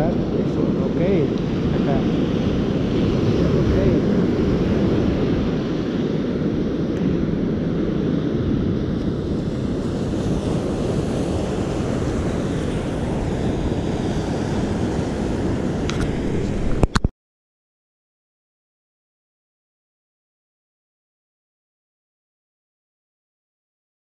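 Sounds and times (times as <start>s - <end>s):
ocean surf breaking: 0.0s - 17.1s
wind rumbling on microphone: 0.0s - 17.1s.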